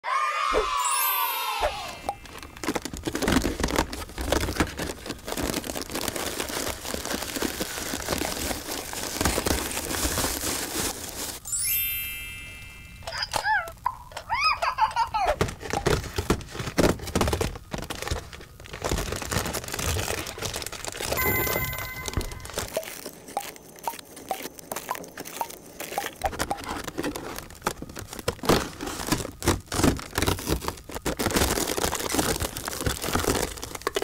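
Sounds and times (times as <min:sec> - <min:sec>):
foil and cardboard crinkling and ripping: 0:02.0 - 0:11.5, 0:14.7 - 0:34.0
brief ringing tone: 0:21.2 - 0:22.6.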